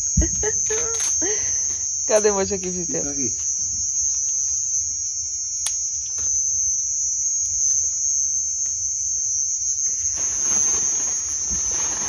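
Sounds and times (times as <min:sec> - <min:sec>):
crickets chirping: 0:00.0 - 0:12.0
corn husks rustling: 0:09.9 - 0:12.0.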